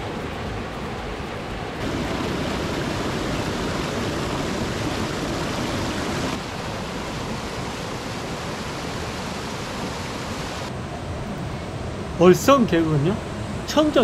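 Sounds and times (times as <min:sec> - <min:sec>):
mountain stream rushing over rock: 0:01.8 - 0:10.7.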